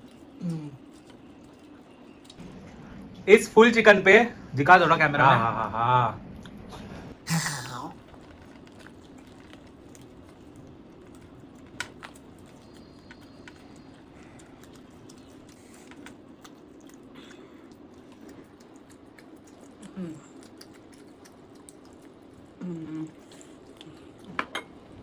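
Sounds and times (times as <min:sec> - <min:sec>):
chicken being torn and chewed: 0:00.0 - 0:02.4, 0:07.6 - 0:24.4
low hum: 0:00.0 - 0:25.0.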